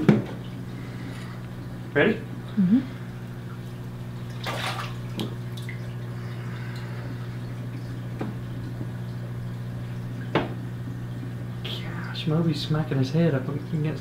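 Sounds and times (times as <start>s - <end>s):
steady low hum: 0.0s - 14.0s
water splashing: 3.5s - 11.7s.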